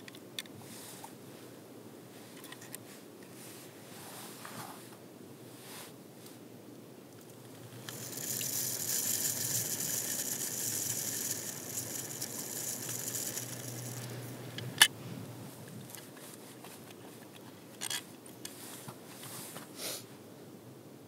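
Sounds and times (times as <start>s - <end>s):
fishing reel ratcheting whirr: 7.2s - 14.9s.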